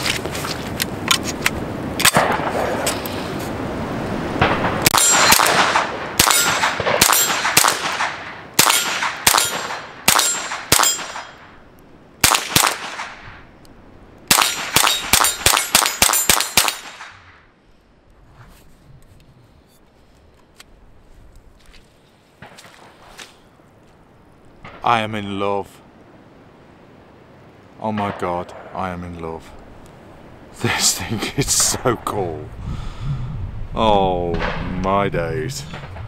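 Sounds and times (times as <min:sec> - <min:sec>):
suppressed rifle shots: 0:02.0 - 0:02.9, 0:04.4 - 0:11.5, 0:12.2 - 0:13.4, 0:14.3 - 0:17.5.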